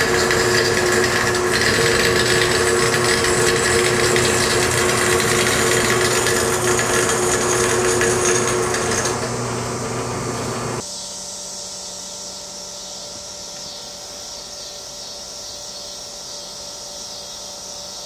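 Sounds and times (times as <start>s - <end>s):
power tool working steel: 0.0s - 10.9s
machine hum: 0.0s - 16.8s.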